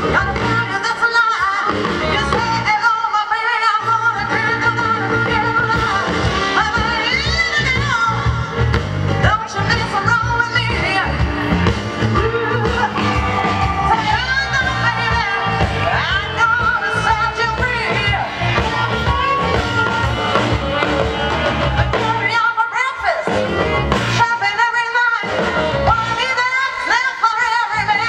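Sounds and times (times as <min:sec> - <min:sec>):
woman singing: 0:00.0 - 0:20.5, 0:21.8 - 0:23.4, 0:24.1 - 0:28.0
electric guitar: 0:00.0 - 0:28.0
steady bass beat: 0:10.8 - 0:22.4.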